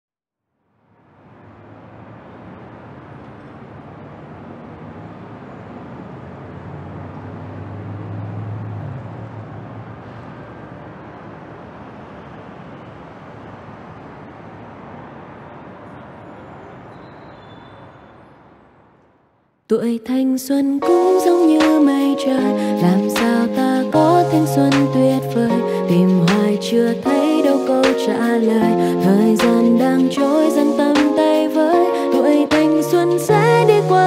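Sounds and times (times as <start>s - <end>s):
distant traffic rumble: 0.8s - 19.5s.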